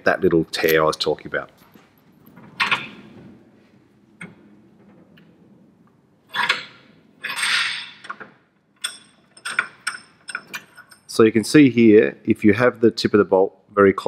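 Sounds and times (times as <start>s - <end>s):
bench vise metallic clanks and scrapes: 2.4s - 3.1s, 6.3s - 11.1s.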